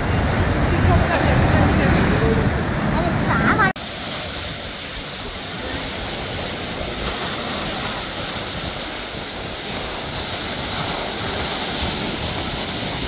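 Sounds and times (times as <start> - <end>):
sea waves breaking over rocks: 0.0 - 13.0.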